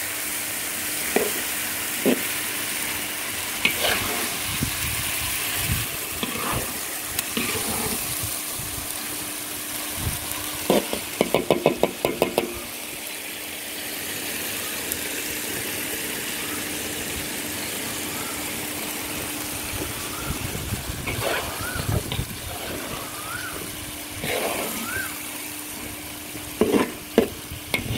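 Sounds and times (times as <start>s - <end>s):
sauce sizzling in a wok: 0.0s - 27.9s.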